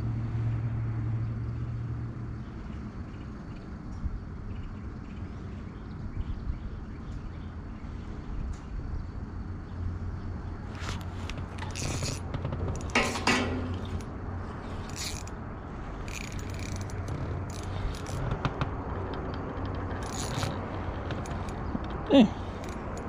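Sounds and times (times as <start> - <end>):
fishing reel clicks and rattles: 10.8 - 21.8, 22.4 - 23.0.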